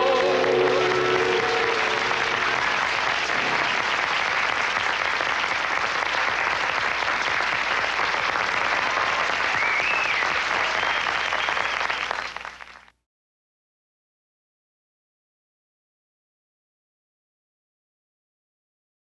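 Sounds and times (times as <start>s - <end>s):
crowd applauding: 0.0s - 12.9s.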